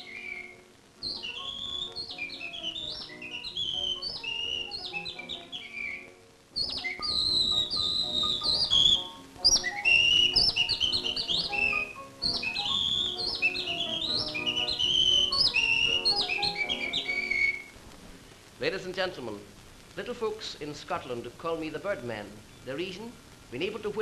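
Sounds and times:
man whistling birdsong imitations: 0.0s - 17.7s
piano accompaniment: 0.0s - 17.8s.

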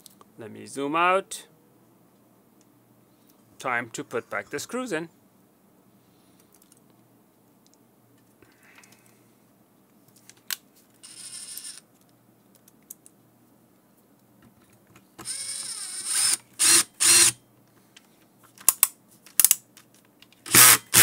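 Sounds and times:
screwdriver rasps: 15.2s - 17.4s, 20.5s - 21.0s.

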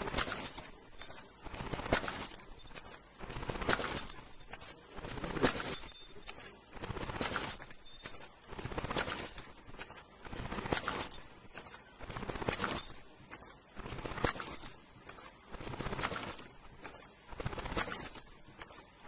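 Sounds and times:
machine clicking and clacking: 0.0s - 19.0s.

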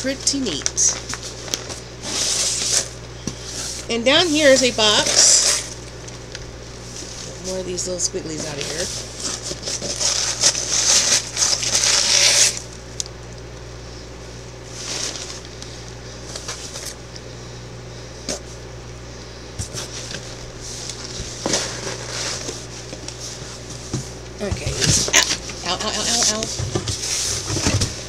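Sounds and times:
steady low hum: 0.0s - 28.0s
packing filler rustling: 8.4s - 12.8s, 14.7s - 17.0s.

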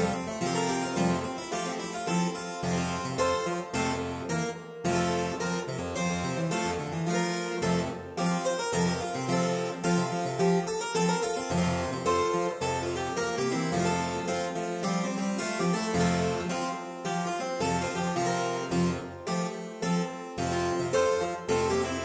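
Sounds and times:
harpsichord playing a prelude: 0.0s - 22.0s.

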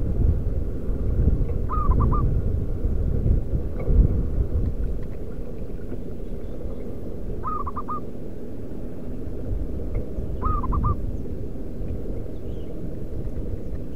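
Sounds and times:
steady low rumble: 0.0s - 13.9s
dove cooing: 1.7s - 2.3s, 7.4s - 8.1s, 10.2s - 11.1s.

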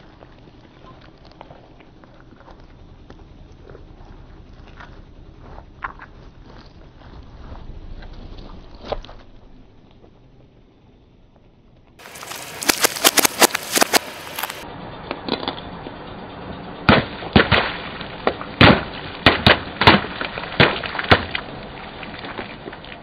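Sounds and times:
item crushed cracking: 12.0s - 14.6s.

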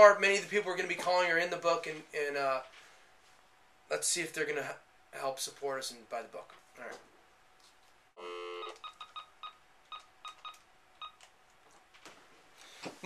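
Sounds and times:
telephone dial tone: 8.2s - 9.2s
keypad beeps: 8.5s - 11.3s.

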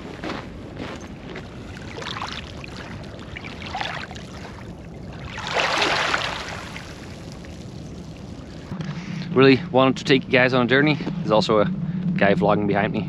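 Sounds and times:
waves lapping over pebbles: 1.1s - 8.7s.

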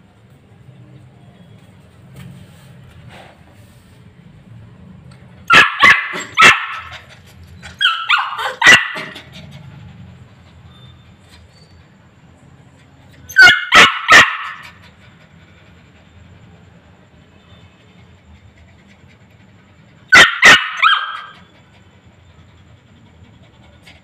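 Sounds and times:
puppy yapping: 5.5s - 9.6s, 13.2s - 14.8s, 20.1s - 21.5s.

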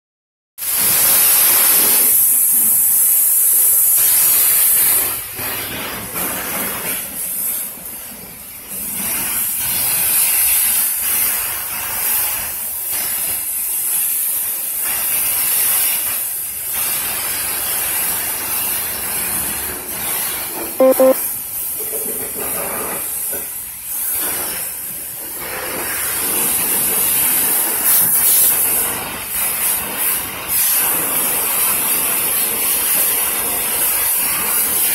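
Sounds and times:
brief pitched sound: 20.8s - 21.2s.

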